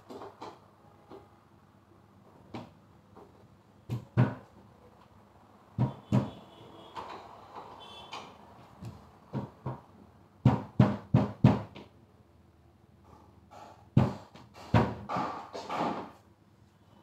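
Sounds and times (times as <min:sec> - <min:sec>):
wooden knocks and bumps: 0:08.8 - 0:11.9.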